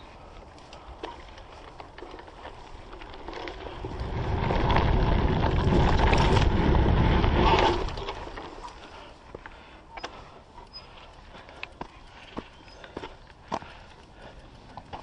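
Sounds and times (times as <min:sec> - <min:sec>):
bike clicks and rattles: 0:00.0 - 0:15.0
bike tyres rumbling on dirt: 0:00.0 - 0:15.0
wind buffeting microphone: 0:02.8 - 0:08.6.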